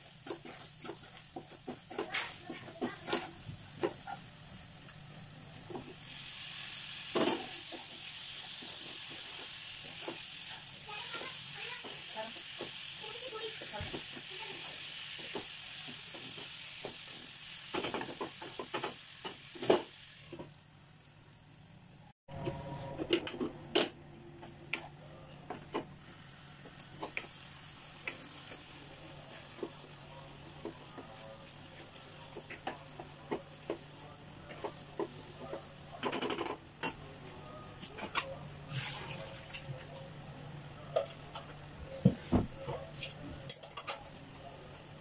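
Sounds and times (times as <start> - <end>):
spatula stirring and scraping: 0.0 - 4.3
food sizzling in a pan: 0.0 - 21.8, 26.0 - 36.2.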